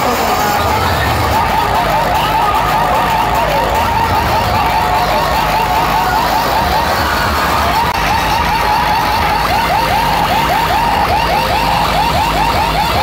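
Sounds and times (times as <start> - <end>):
warbling siren-like effect: 0.0 - 13.0
steady low bass: 0.2 - 13.0.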